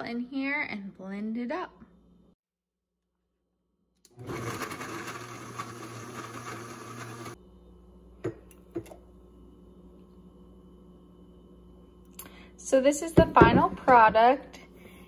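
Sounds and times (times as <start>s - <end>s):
blender running: 4.1s - 7.4s.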